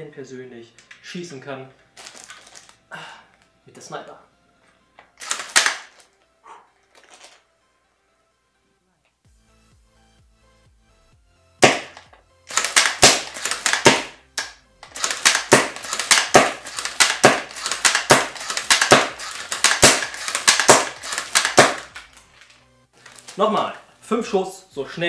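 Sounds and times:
airsoft rifle shots: 5.2s - 6.0s, 11.6s - 22.1s
rifle bolt clacks: 5.2s - 6.1s, 11.6s - 22.5s.

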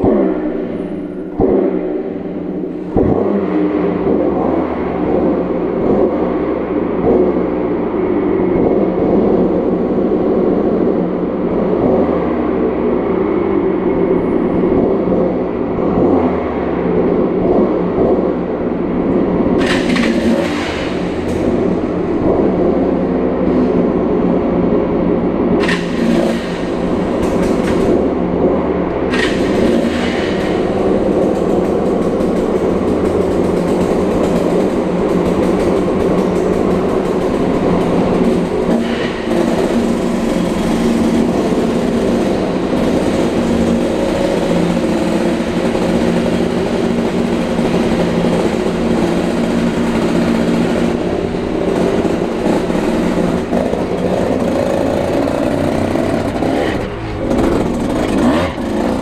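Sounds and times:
engine revving in a tunnel: 0.0s - 59.0s
harsh noise bursts: 29.1s - 59.0s.

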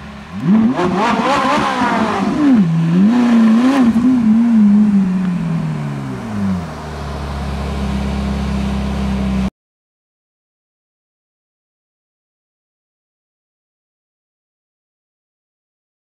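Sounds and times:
sports car engine at low revs: 0.0s - 9.5s.

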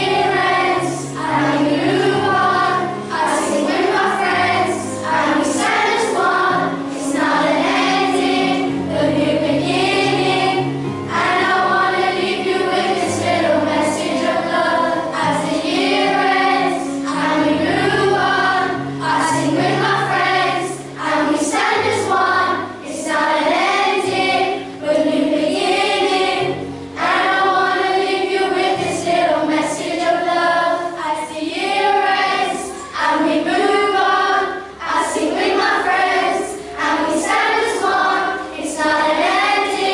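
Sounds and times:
children's choir singing: 0.0s - 39.9s
low held accompaniment notes: 0.0s - 39.9s.

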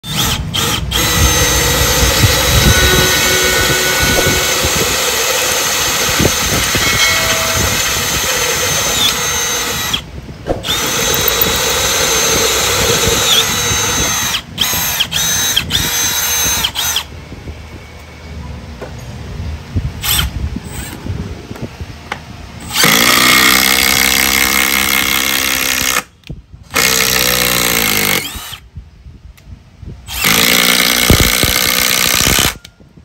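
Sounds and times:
cordless drill whining: 0.0s - 17.1s, 22.6s - 26.1s, 26.8s - 28.6s, 30.1s - 32.6s.

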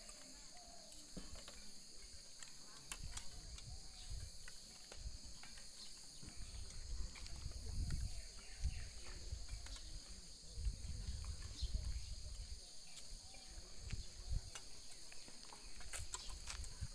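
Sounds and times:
crickets chirping: 0.0s - 16.9s
wind rumble on microphone: 6.2s - 14.6s, 15.9s - 16.9s.

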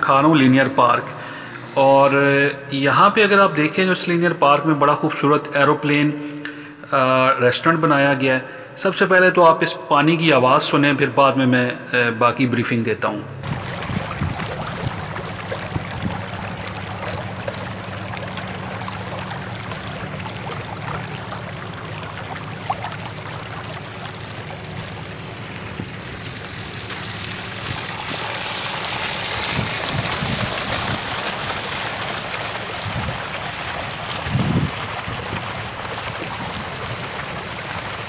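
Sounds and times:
fountain water splashing: 13.4s - 38.0s.

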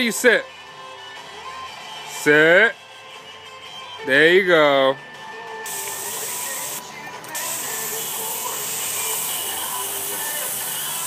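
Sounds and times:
garden hose spraying water: 5.7s - 6.8s, 7.4s - 11.0s.

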